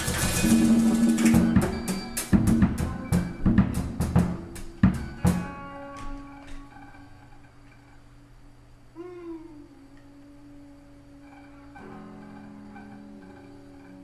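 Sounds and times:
band playing drums bass and synth: 0.0s - 5.8s.

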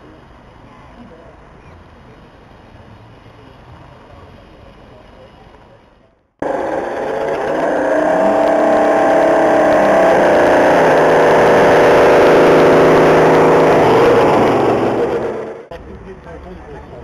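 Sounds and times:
toy truck motor drone: 6.4s - 15.7s.

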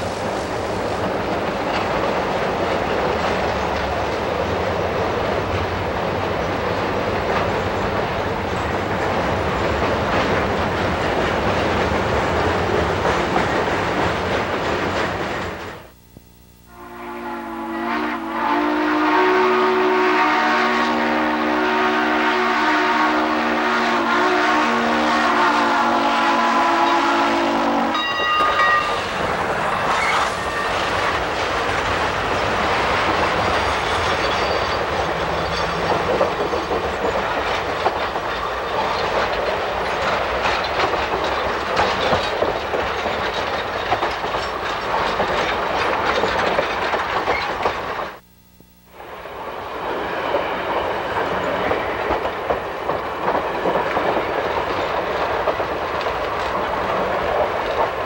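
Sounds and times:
train wheels clattering: 0.0s - 15.8s, 27.9s - 48.2s, 49.4s - 58.0s
train horn blast: 16.7s - 29.1s.

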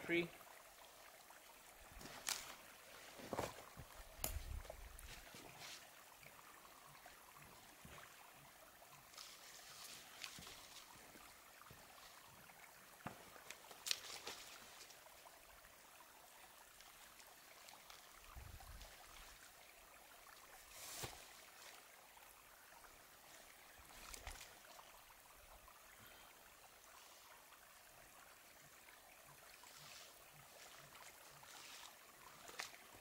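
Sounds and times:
faint steady hiss: 0.0s - 33.0s
hammock rustling: 1.8s - 6.0s, 9.1s - 12.2s, 13.4s - 15.1s, 20.6s - 21.8s, 29.6s - 33.0s.

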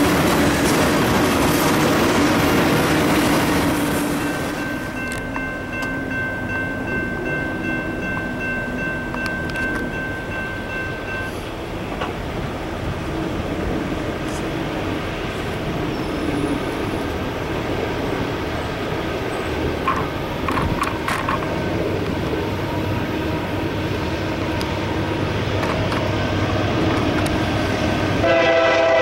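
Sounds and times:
train wheels rumbling: 0.0s - 29.0s
crossing bell dinging: 3.4s - 12.0s.

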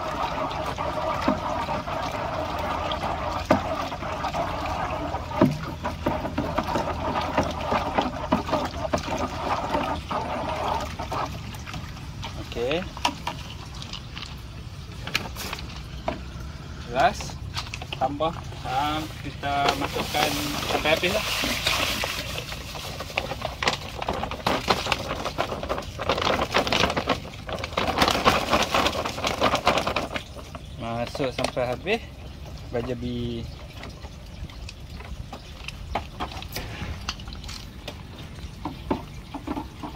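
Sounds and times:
sharp water splashes: 0.0s - 39.9s
water churning and sloshing: 0.0s - 39.9s
plastic sack crinkling: 18.6s - 30.6s.

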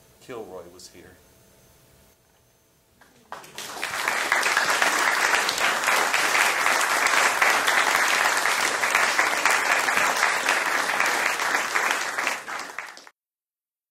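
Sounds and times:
audience applauding: 3.1s - 13.1s.

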